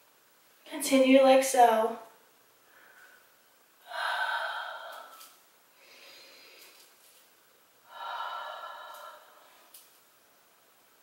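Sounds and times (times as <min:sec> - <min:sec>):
woman breathing deeply: 0:02.6 - 0:07.2, 0:07.8 - 0:09.8.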